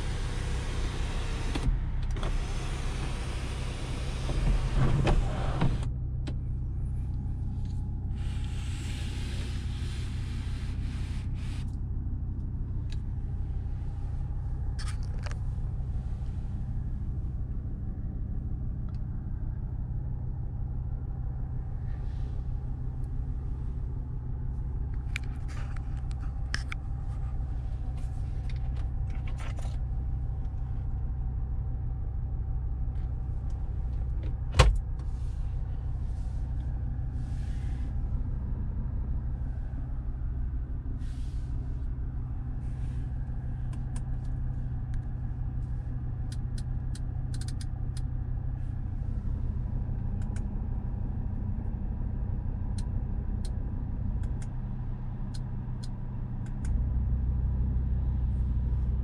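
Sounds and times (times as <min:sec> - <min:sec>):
car engine idling: 0:00.0 - 0:59.0
light clicks of handling: 0:24.9 - 0:30.6, 0:43.2 - 0:48.2, 0:49.8 - 0:50.6, 0:54.2 - 0:56.9.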